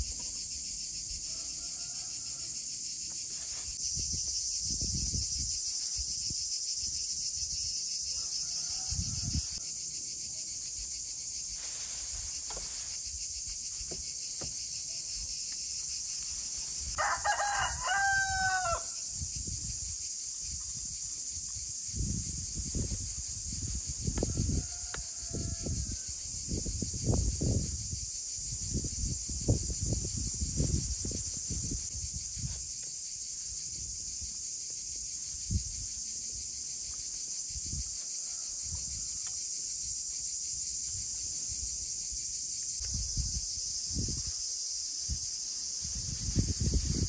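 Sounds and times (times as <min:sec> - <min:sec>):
crickets chirping: 0:00.0 - 0:47.0
rooster crowing: 0:01.3 - 0:02.6, 0:08.1 - 0:09.7, 0:16.9 - 0:19.0, 0:24.2 - 0:26.2, 0:38.1 - 0:39.3.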